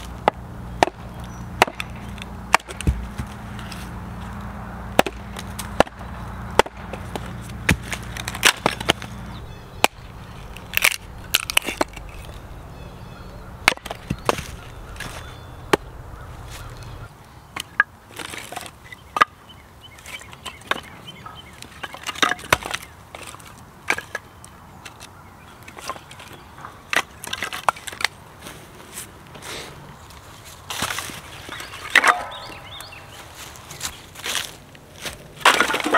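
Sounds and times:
hatchet chopping wood: 0.0s - 3.8s, 4.9s - 12.3s, 13.6s - 15.9s, 21.8s - 22.9s
wood cracking as it splits: 5.0s - 9.2s, 9.8s - 12.5s, 13.6s - 17.0s, 21.6s - 24.2s, 33.8s - 35.9s.

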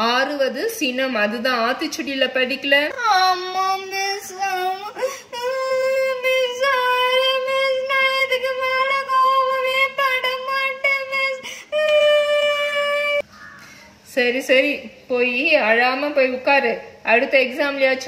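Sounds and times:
catches of breath: 13.3s - 14.0s.

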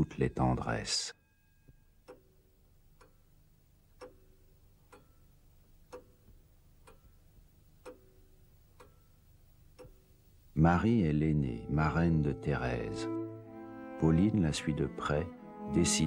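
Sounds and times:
clock ticking with ringing tone: 0.0s - 10.2s.

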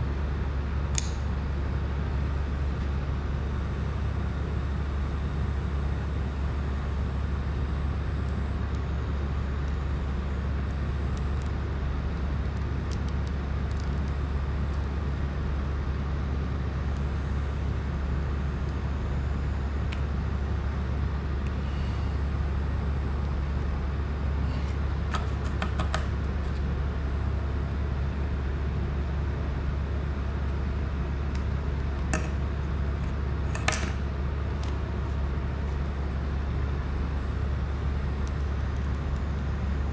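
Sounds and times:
steady low hum: 0.0s - 39.9s
tools clicking and tapping: 25.1s - 26.1s.

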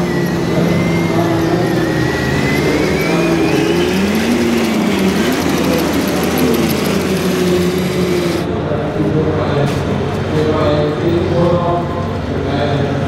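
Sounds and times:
model tank drive whining: 0.0s - 8.5s.

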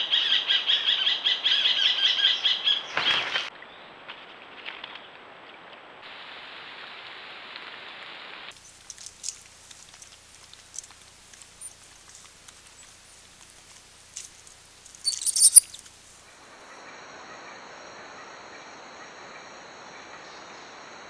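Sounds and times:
steady hiss: 6.0s - 16.9s
claws scratching on bark: 8.5s - 16.1s
animals squeaking and scrabbling: 8.6s - 16.1s.

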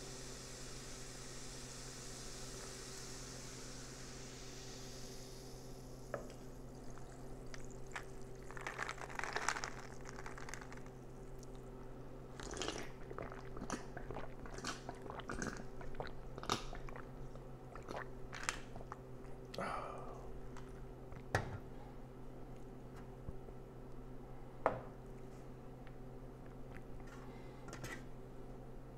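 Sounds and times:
soda fizzing: 0.0s - 11.6s, 12.4s - 19.0s
person sipping and gulping: 6.2s - 21.3s
ice cubes clinking in cup: 7.0s - 11.0s.

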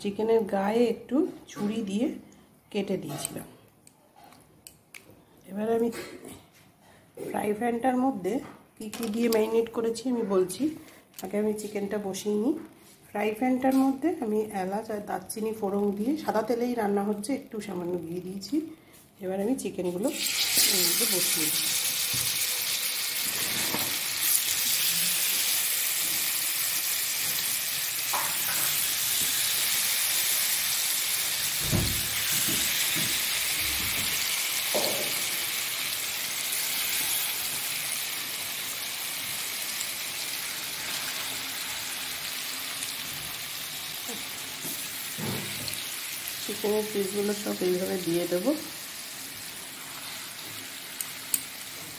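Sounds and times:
chicken sizzling in hot oil: 19.9s - 51.9s.

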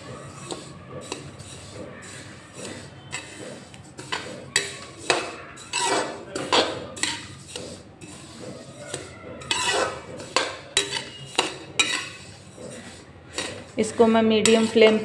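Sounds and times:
metal spoon scraping pan: 0.0s - 15.0s.

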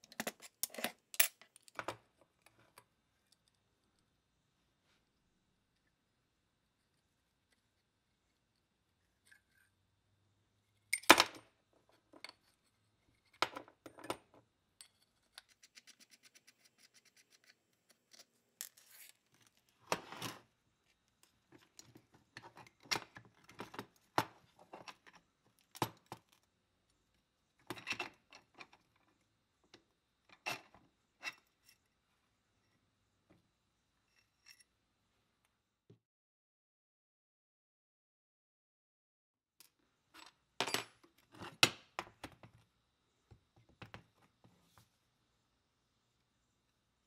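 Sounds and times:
metal parts clinking and scraping: 0.0s - 1.8s.

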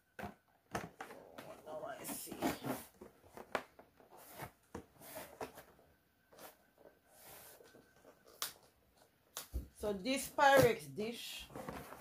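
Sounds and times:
cardboard scraping and rustling: 1.0s - 8.4s, 11.4s - 12.0s.

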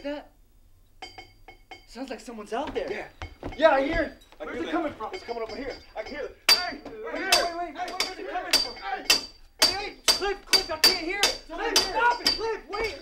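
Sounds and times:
ringing knocks on metal: 1.0s - 1.9s, 2.9s - 4.1s, 5.1s - 13.0s.

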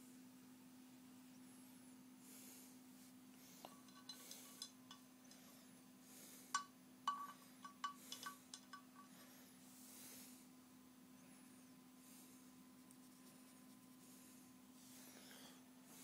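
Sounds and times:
paintbrush clinking on water pot: 3.6s - 5.5s, 6.5s - 9.2s.

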